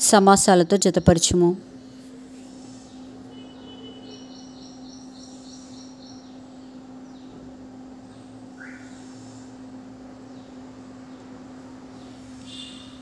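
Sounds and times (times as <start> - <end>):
steady low hum: 0.0 - 13.0
bird chirping: 2.9 - 7.4, 12.0 - 13.0.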